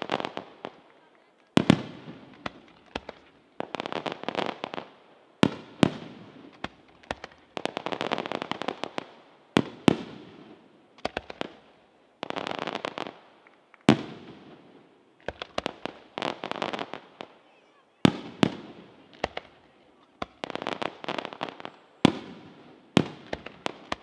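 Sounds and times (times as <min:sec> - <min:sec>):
firework bangs: 0:00.0 - 0:24.0
firework crackling: 0:00.0 - 0:24.0.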